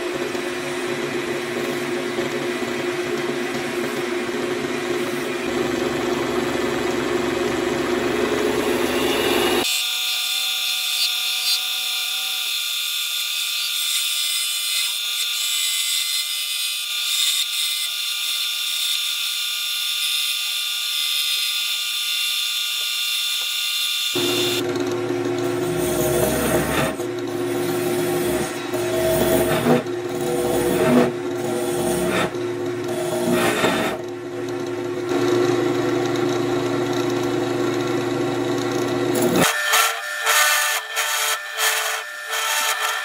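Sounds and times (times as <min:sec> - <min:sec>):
gouge cutting spinning wood: 0:00.0 - 0:43.0
lathe motor hum: 0:00.1 - 0:09.6, 0:24.2 - 0:39.4.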